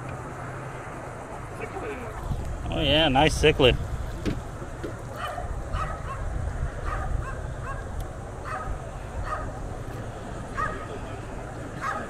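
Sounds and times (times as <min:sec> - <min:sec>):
distant dog barking: 0:05.1 - 0:09.6, 0:10.5 - 0:12.0.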